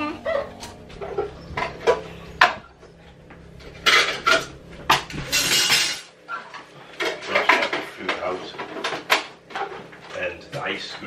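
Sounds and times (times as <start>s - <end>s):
dishes and cutlery clinking: 3.7s - 9.8s.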